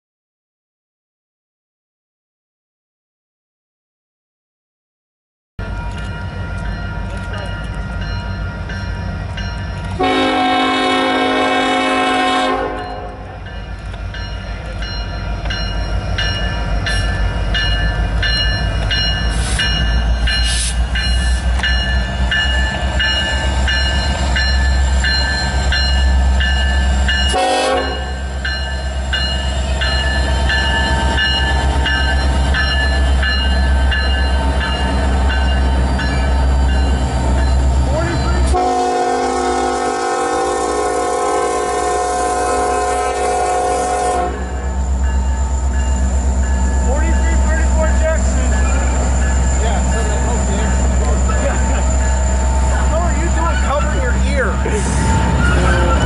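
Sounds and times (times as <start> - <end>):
diesel locomotive rumble: 5.6 - 56.0
locomotive air horn blasts: 10.0 - 13.2, 27.3 - 28.2, 38.5 - 44.6.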